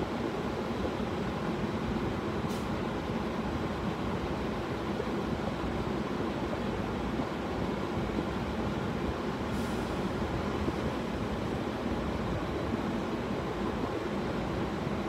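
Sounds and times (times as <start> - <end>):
brief hiss: 9.5 - 10.1.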